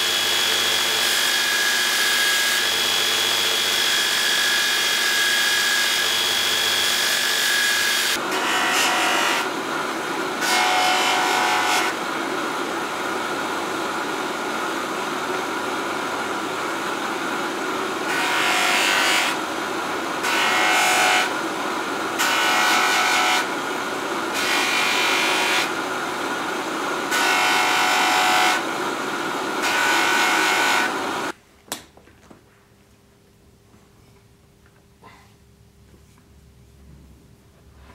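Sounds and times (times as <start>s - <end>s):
belt grinder whining on metal: 24.3s - 31.3s
bench motor with buffing wheel: 24.3s - 31.3s.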